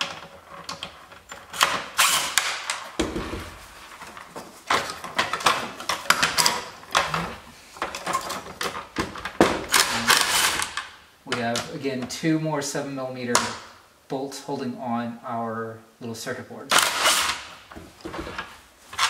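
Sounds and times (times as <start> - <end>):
plastic knocks and rattles: 0.0 - 11.7, 17.7 - 19.0.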